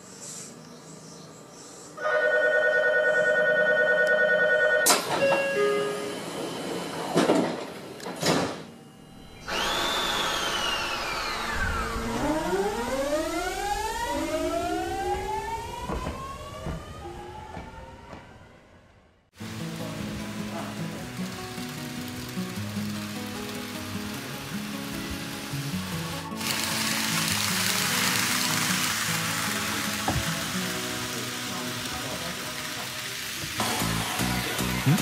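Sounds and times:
electric train inverter whine: 0.6 - 35.0
departure signal ringing: 2.0 - 6.2.

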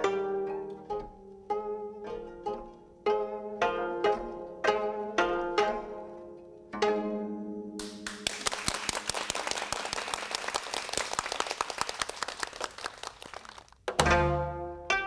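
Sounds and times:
plucked zither notes: 0.0 - 7.8, 13.9 - 15.0
zither ensemble playing: 0.0 - 8.0, 13.9 - 15.0
audience applauding: 7.8 - 13.9.

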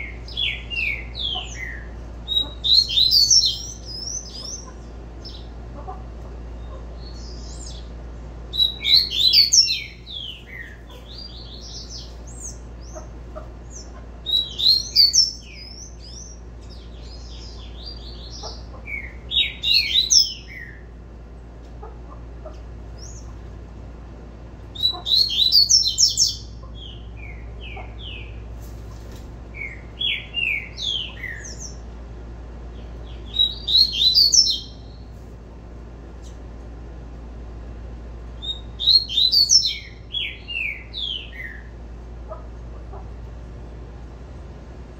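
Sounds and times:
bird twittering song: 0.0 - 5.6, 6.4 - 20.9, 22.9 - 23.4, 24.7 - 31.9, 32.7 - 35.1, 38.4 - 41.8.

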